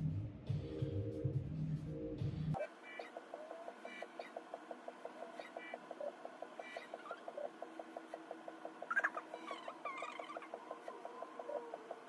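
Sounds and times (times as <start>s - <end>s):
faint background music: 0.0s - 12.0s
squeaky chirp: 5.4s - 7.5s, 8.8s - 12.0s.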